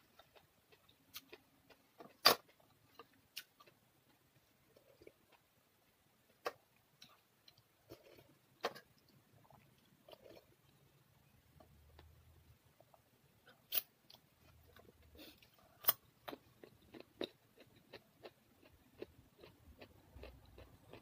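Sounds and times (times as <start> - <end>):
quiet chewing: 0.0 - 21.0.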